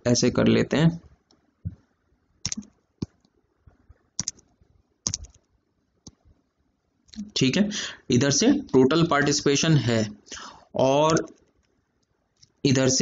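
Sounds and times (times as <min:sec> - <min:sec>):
computer mouse clicks: 0:02.4 - 0:03.4, 0:04.2 - 0:06.2.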